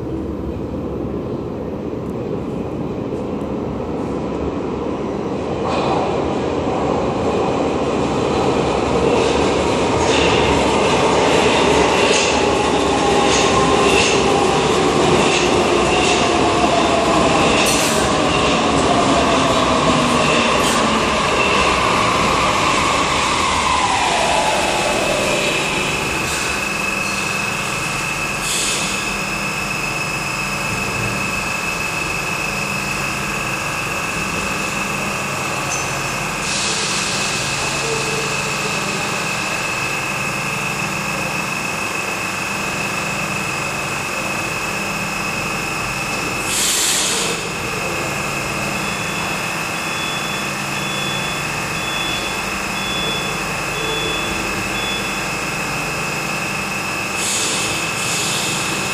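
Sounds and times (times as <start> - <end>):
metro train braking whine: 0.0 - 58.9
train machinery high whine: 5.6 - 58.9
air hisses: 36.4 - 37.6, 46.4 - 47.5, 57.2 - 58.8.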